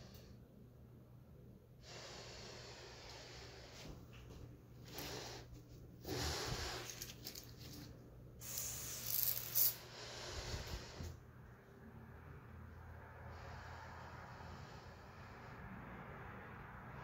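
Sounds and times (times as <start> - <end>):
person breathing: 1.8 - 7.5, 8.4 - 11.2, 13.0 - 17.0.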